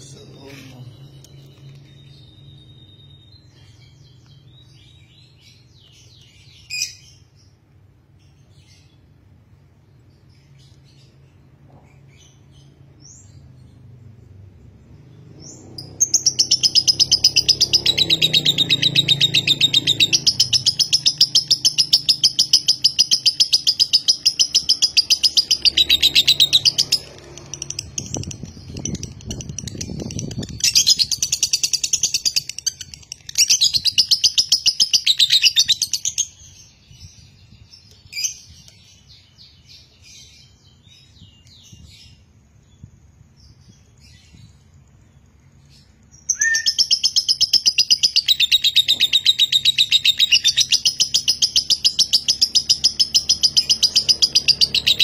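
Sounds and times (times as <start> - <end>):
soft bird chirps: 0.0 - 55.0
bird shrill chattering trill: 46.3 - 55.0.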